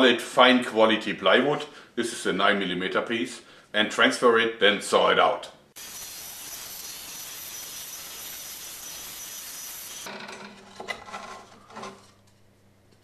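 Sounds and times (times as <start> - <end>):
scroll saw rasping buzz: 5.8 - 10.1.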